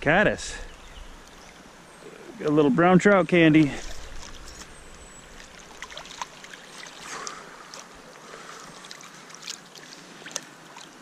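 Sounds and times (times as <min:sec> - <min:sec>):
water sloshing around net: 0:03.7 - 0:11.0.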